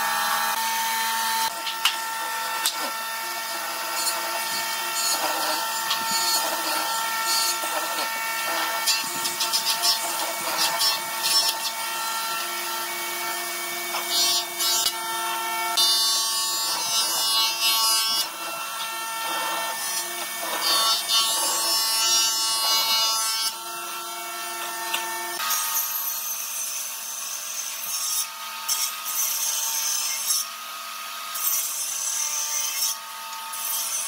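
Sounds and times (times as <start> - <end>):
mortiser motor hum: 0.0 - 17.6, 18.2 - 23.0.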